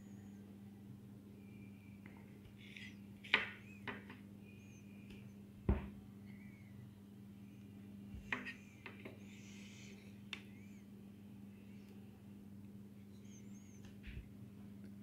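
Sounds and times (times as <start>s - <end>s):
steady low hum: 0.0s - 15.0s
faint high chirps: 1.4s - 5.4s, 6.2s - 7.8s, 13.0s - 14.2s.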